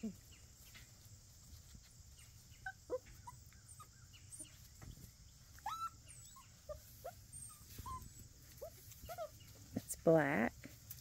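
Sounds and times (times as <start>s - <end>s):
puppies squeaking and yipping: 1.7s - 9.6s.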